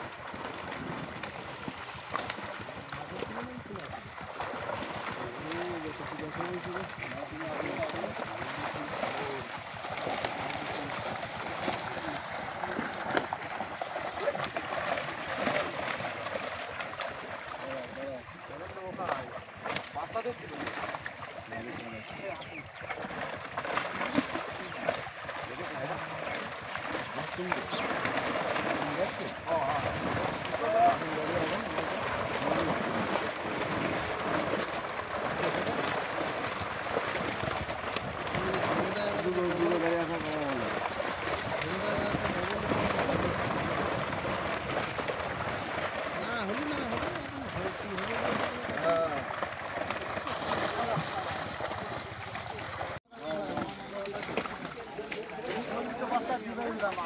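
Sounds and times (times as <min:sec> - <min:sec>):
fish thrashing in water: 0:00.0 - 0:57.0
sharp water slaps: 0:00.0 - 0:57.0.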